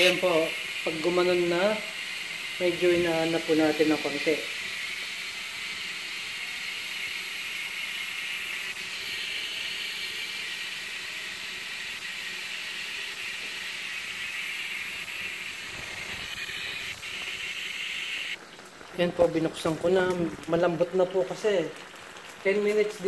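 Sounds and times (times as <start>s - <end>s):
pressure cooker hissing steam: 0.0s - 18.4s.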